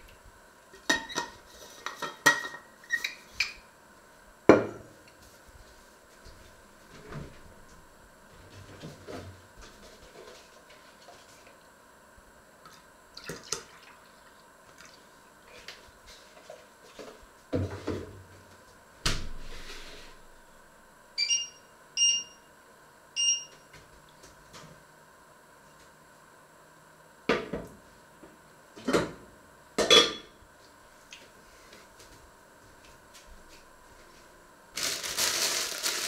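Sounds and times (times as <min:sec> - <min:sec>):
pots clattering on hob: 0:00.8 - 0:02.7
short electronic beeps: 0:21.2 - 0:22.4.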